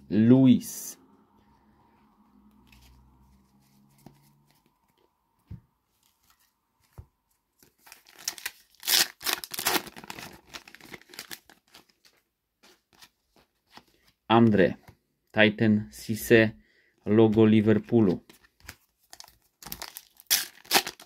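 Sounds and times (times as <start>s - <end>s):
card wrapper tearing and crackling: 7.6s - 12.1s, 18.6s - 21.0s.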